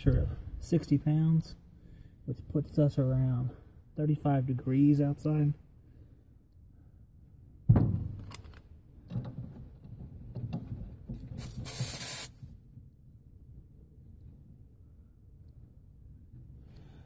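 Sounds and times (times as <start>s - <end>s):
refrigerant hissing: 11.4s - 12.5s.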